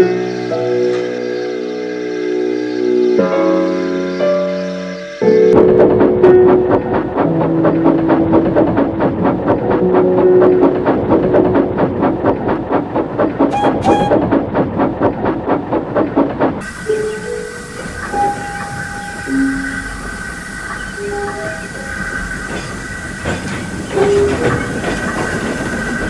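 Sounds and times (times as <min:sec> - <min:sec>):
steam locomotive chuffing: 0:05.5 - 0:26.0
held whistle tones: 0:13.5 - 0:14.3
steam hiss: 0:16.6 - 0:26.0.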